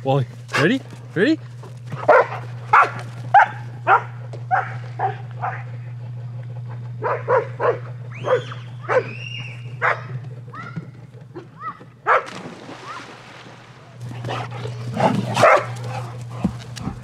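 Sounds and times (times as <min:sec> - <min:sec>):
dog barking: 0:02.0 - 0:05.7, 0:07.0 - 0:09.2, 0:09.8 - 0:10.2, 0:12.0 - 0:12.3, 0:15.3 - 0:16.1
dog yelping: 0:07.0 - 0:12.3, 0:15.3 - 0:16.0.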